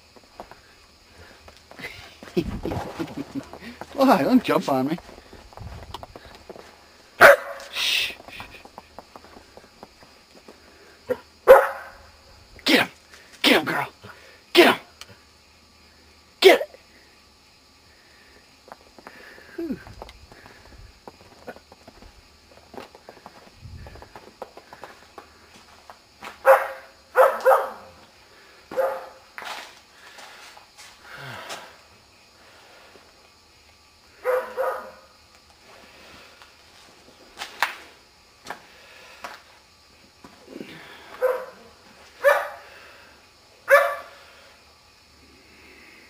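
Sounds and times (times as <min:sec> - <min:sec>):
dog barking: 0:07.2 - 0:07.7, 0:11.1 - 0:12.1, 0:26.4 - 0:28.0, 0:28.7 - 0:29.2, 0:34.2 - 0:35.1, 0:41.2 - 0:42.6, 0:43.7 - 0:44.2.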